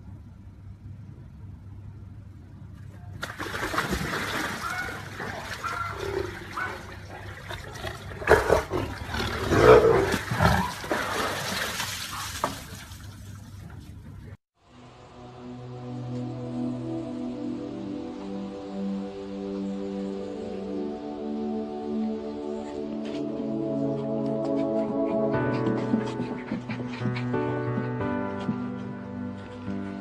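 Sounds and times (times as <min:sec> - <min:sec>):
water splashing and pouring: 0:03.2 - 0:14.0.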